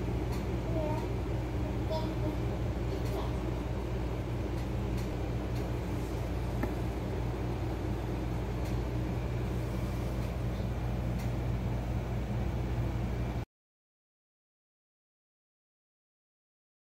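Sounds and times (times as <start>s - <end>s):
low mechanical hum: 0.0s - 13.5s.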